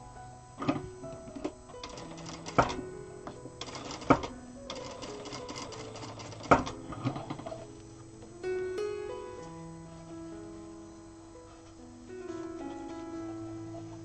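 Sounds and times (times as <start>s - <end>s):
guitar music: 0.0s - 14.0s
sewing machine stitching: 1.8s - 2.8s, 3.6s - 7.6s.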